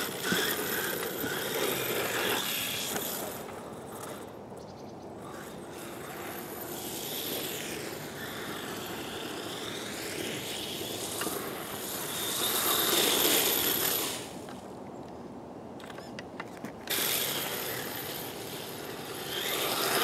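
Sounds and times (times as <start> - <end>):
electric motor whining: 0.0 - 3.5, 16.9 - 20.0.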